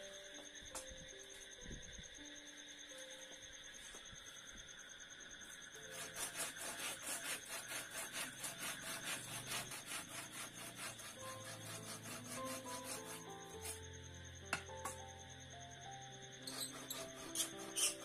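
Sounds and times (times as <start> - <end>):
hand saw cutting bamboo: 5.9 - 13.8, 16.5 - 18.0.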